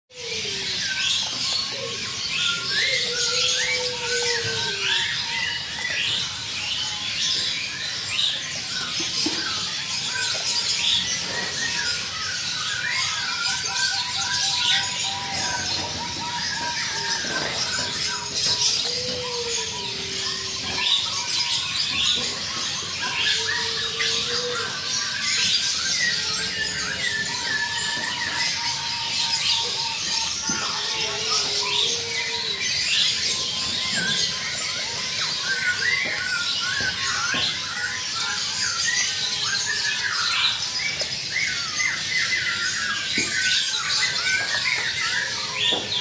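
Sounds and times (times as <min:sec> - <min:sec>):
dove cooing: 0:00.1 - 0:05.6, 0:13.5 - 0:21.2, 0:22.0 - 0:37.6
caged birds chirping: 0:00.1 - 0:46.0.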